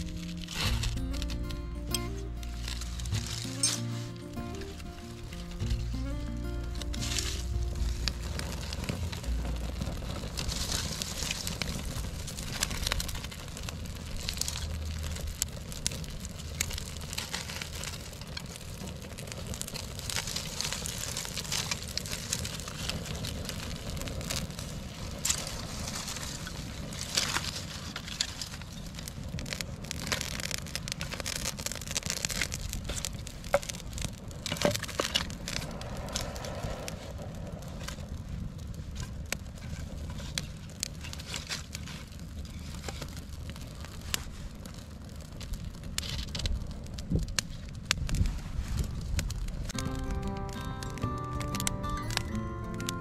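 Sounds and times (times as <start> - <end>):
dry sticks being handled: 0.0 - 11.8
campfire crackling: 0.0 - 53.0.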